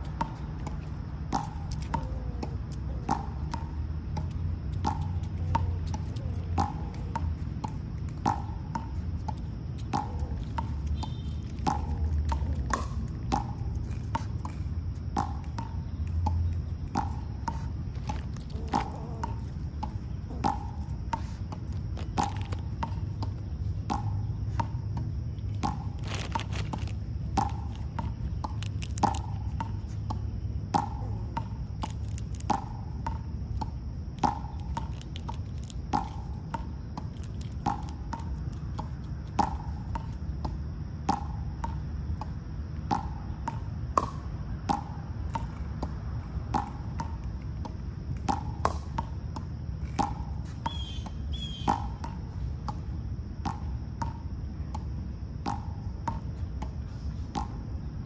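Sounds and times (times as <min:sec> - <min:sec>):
chipmunk chuck call: 0:01.8 - 0:03.4, 0:18.5 - 0:19.5.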